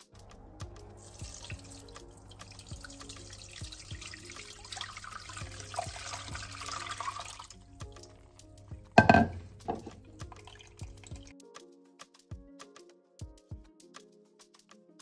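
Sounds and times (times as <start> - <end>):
soft background music: 0.0 - 15.0
liquid pouring into container: 0.9 - 11.3.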